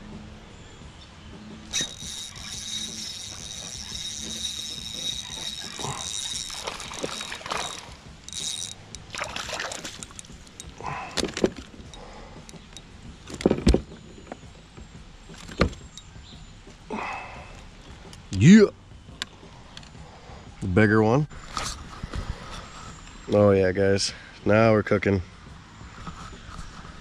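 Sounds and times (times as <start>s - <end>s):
thin high steady tone: 1.7s - 9.0s
water moving against hull: 1.7s - 11.2s
handling noises on kayak: 1.7s - 16.0s.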